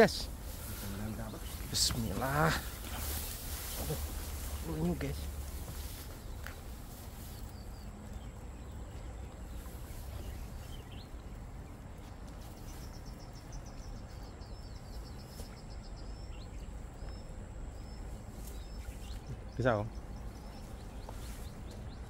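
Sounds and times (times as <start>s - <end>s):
wind: 0.0s - 22.0s.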